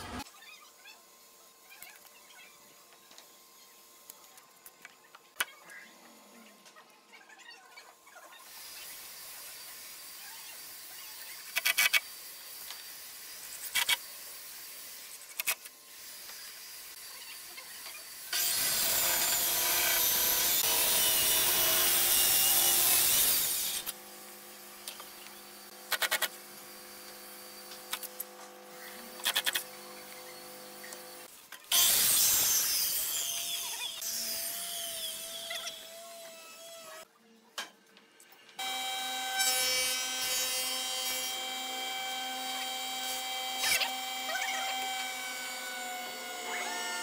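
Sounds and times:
circular saw cutting wood: 15.9 - 37.1, 38.6 - 47.0.

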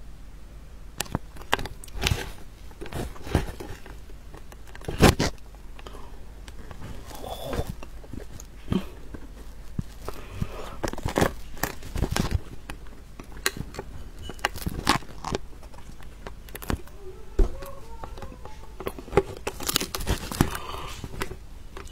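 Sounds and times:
fruit cracking and tearing: 1.0 - 21.9.

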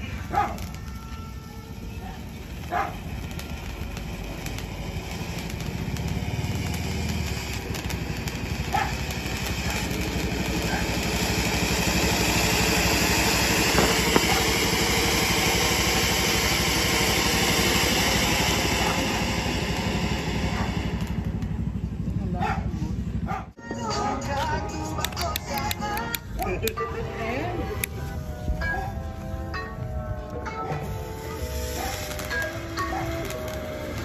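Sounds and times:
firework fountain hissing: 0.0 - 23.2, 30.8 - 34.0
faint crackles: 31.3 - 34.0.

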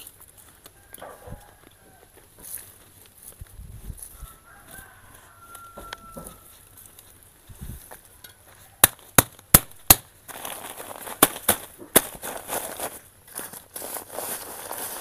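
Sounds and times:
rustling of dry soil and leaves: 0.0 - 15.0
sharp cracks and snaps: 8.8 - 10.5.

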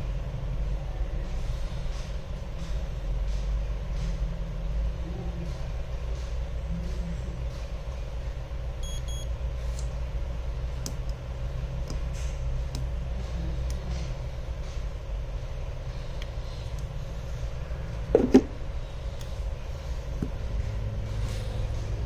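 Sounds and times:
steady low rumble: 0.0 - 22.0
short electronic beeps: 8.8 - 9.3.

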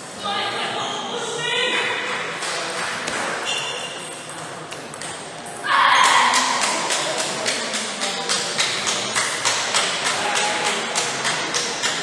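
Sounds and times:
spectators clapping rhythmically: 6.0 - 12.0.

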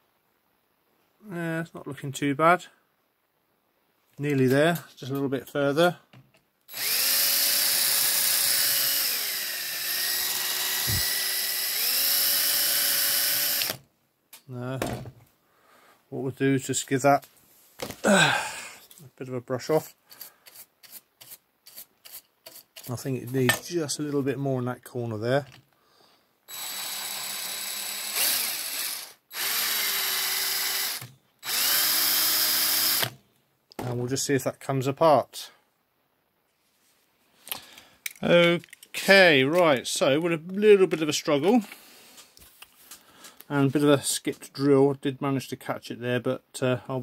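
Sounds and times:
electric drill motor whine: 6.7 - 13.8, 26.5 - 33.2.

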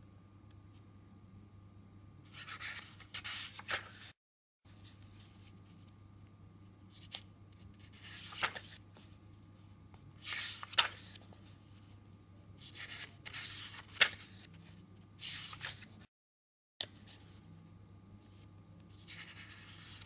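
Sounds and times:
book pages turning: 2.4 - 4.1, 7.0 - 12.0, 12.6 - 16.1, 18.3 - 20.0.

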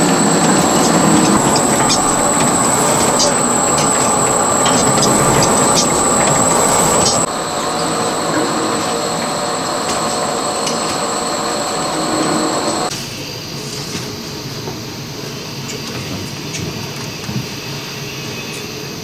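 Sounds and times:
machinery clatter and hum: 0.0 - 12.9
thin high whine: 0.0 - 12.9.

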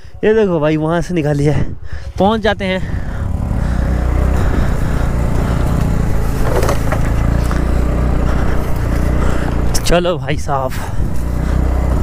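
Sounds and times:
scooter engine running: 2.8 - 12.0
short rattle: 6.2 - 7.4.

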